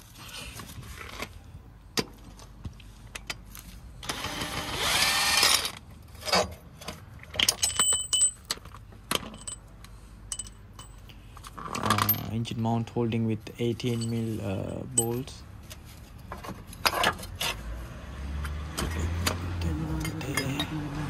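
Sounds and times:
power tool whirring: 4.0 - 5.8
metallic clinks of tools: 7.4 - 8.6, 9.3 - 9.7, 10.3 - 11.1, 13.8 - 15.4.

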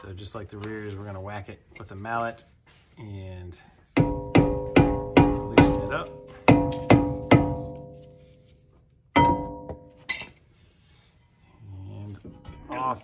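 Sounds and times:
mallet striking ringing brake rotor: 4.0 - 8.4, 9.1 - 10.3.

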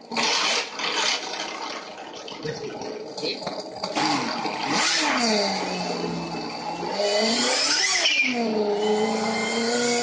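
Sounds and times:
synthesized car engine revving: 3.8 - 10.0.

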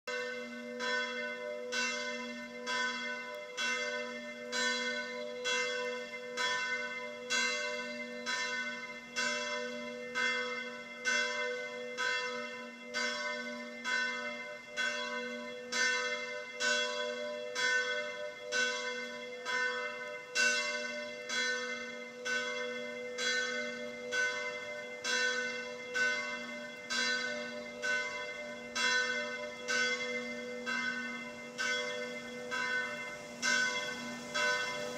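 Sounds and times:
bell tolling: 19.5 - 34.9.

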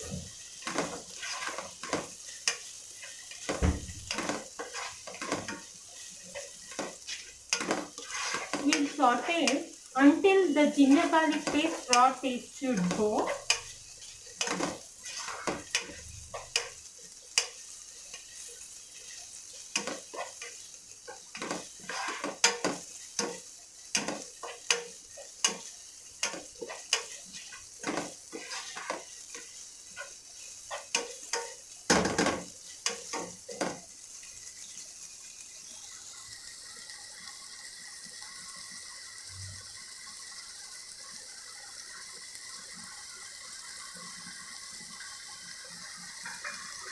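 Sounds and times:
onions sizzling in oil: 0.0 - 46.9
spatula scraping a pot: 0.6 - 9.6, 10.8 - 16.8, 17.4 - 33.8.

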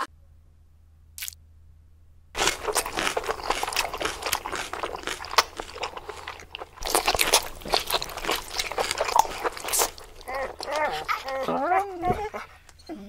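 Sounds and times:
crunching and chewing crisp food: 2.4 - 12.8.

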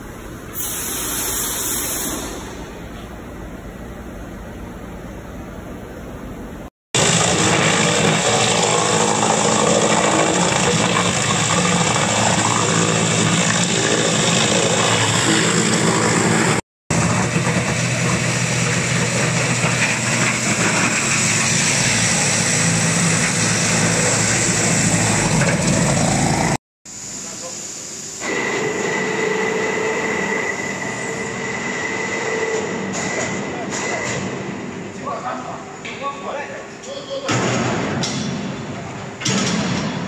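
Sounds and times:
wood crusher shredding branches: 7.0 - 26.5.

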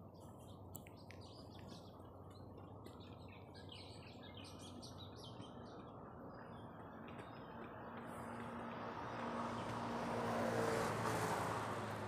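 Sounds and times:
small birds chirping: 0.0 - 8.4.

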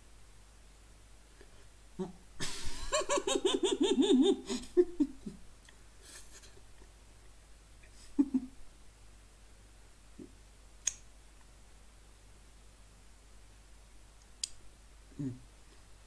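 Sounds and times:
man laughing with mouth closed: 2.0 - 5.4, 6.0 - 7.0, 7.9 - 8.6.

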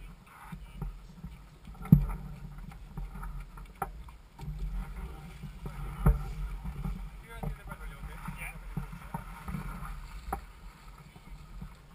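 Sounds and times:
low rumble of water: 0.0 - 11.9
wind: 0.0 - 11.9
knocks through a boat hull: 1.7 - 10.5.

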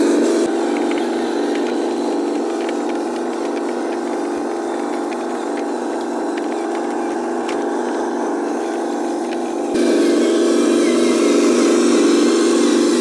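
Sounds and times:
toy truck motor humming: 0.0 - 13.0
small clicks: 0.4 - 9.8.

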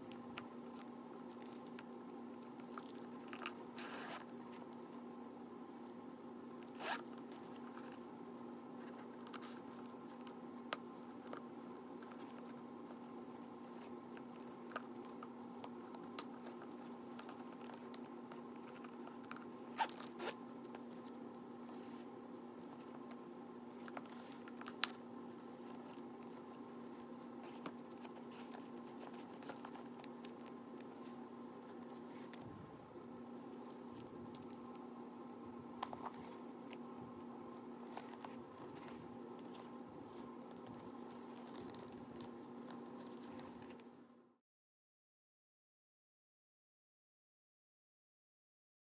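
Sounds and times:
zipper rasping: 3.8 - 4.3, 6.7 - 7.2, 19.6 - 20.4.

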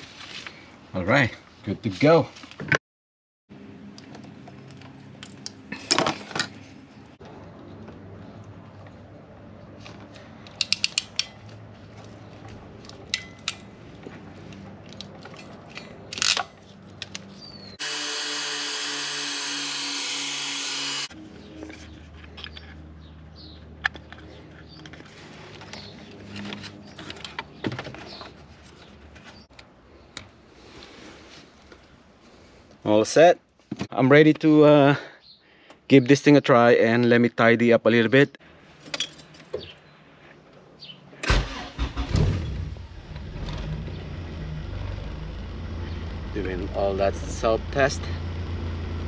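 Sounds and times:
heat gun blowing: 17.8 - 21.2.

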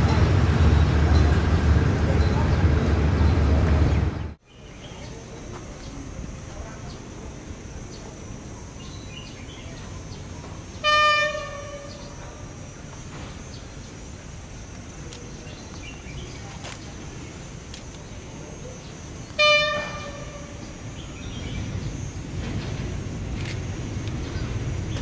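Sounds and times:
diesel locomotive horn toots: 10.8 - 12.6, 19.3 - 21.0.

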